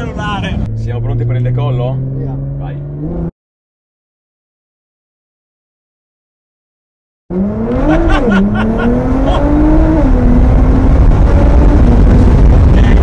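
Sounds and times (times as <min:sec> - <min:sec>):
car engine accelerating: 0:00.0 - 0:03.3, 0:07.3 - 0:13.0.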